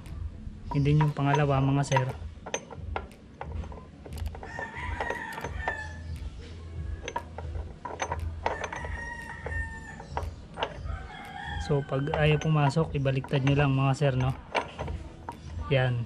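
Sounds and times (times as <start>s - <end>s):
metal gears clicking: 0.7s - 15.7s
rooster crowing: 4.4s - 6.1s, 8.5s - 12.8s.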